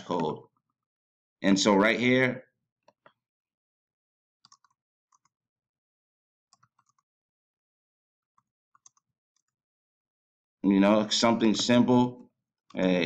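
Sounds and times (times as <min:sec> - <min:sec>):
keyboard typing: 0:04.4 - 0:05.3, 0:06.5 - 0:07.0, 0:08.8 - 0:09.5.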